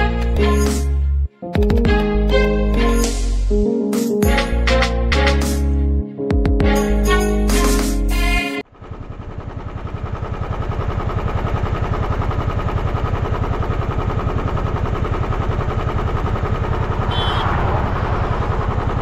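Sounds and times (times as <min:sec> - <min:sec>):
motorcycle engine idling: 0:08.7 - 0:19.0.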